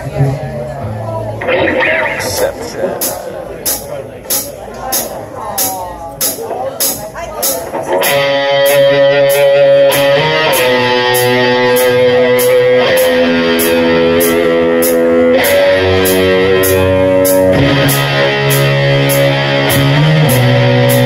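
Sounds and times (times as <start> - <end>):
bass guitar: 0.0 - 21.0
electric guitar chords: 0.8 - 3.8, 7.7 - 21.0
cymbal beat: 1.8 - 21.0.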